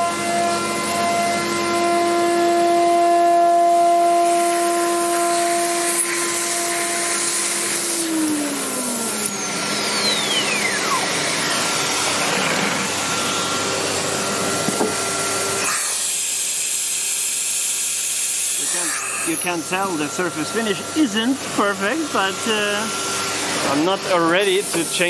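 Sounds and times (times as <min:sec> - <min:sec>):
vacuum and dust extraction rushing: 0:00.0 - 0:16.3, 0:18.5 - 0:25.0
router spindle whine: 0:00.0 - 0:25.0.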